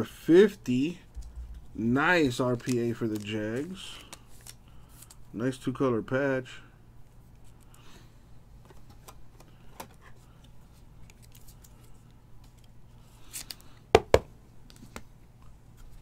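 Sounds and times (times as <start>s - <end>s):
plastic card holders rustling: 2.3s - 5.2s.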